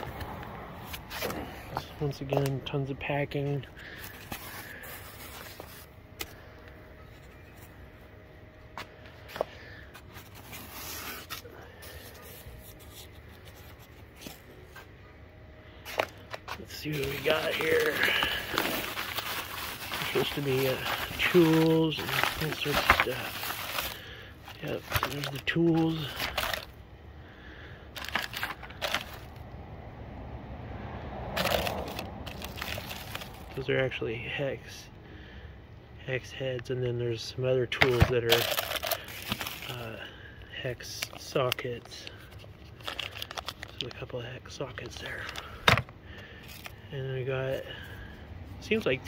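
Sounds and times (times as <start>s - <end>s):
low steady rumble: 0.0s - 48.9s
plastic packaging crinkling: 3.8s - 6.4s, 9.3s - 14.6s, 15.9s - 26.8s, 28.0s - 29.4s, 31.4s - 33.7s, 37.8s - 40.0s, 40.8s - 44.1s, 44.8s - 46.8s.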